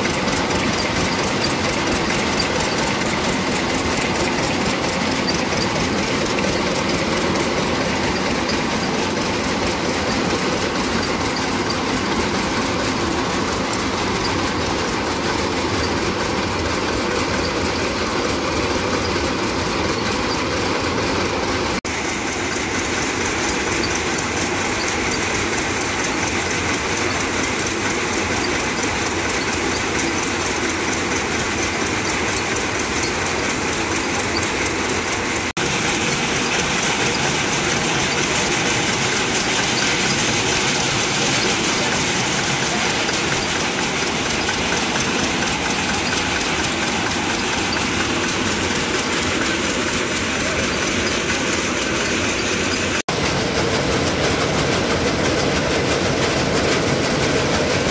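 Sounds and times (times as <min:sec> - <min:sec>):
shelling machine running: 0:00.0 - 0:57.9
stationary engine: 0:00.0 - 0:57.9.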